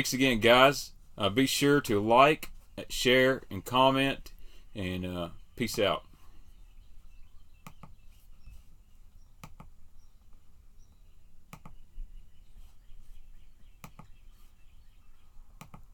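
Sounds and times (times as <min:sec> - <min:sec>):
sharp clicks: 0:07.6 - 0:08.0, 0:09.4 - 0:09.7, 0:11.5 - 0:11.8, 0:13.8 - 0:14.1, 0:15.6 - 0:15.9.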